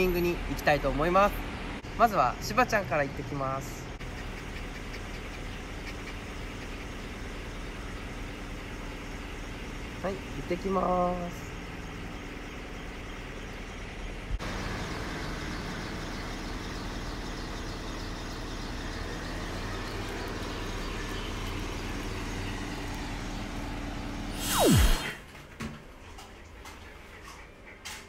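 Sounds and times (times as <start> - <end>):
street traffic: 0.0 - 28.0
loud whoosh dropping in pitch: 24.3 - 25.2.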